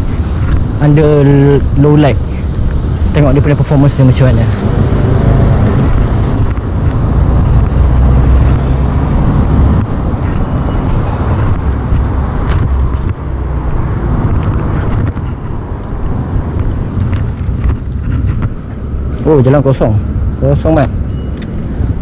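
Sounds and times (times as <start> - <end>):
street noise rumble: 0.0 - 22.0.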